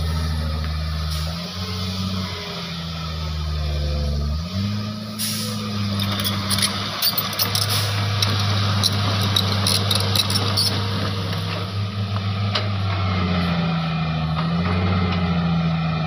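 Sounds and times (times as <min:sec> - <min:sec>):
excavator diesel engine under load: 0:00.0 - 0:16.0
sharp clicks and knocks: 0:06.0 - 0:11.6.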